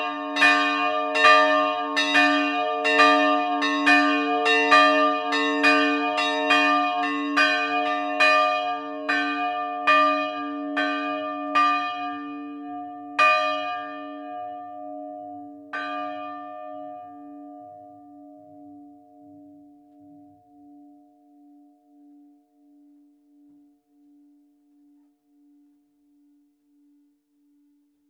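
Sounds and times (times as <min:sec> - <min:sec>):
church bells ringing: 0:00.0 - 0:21.6.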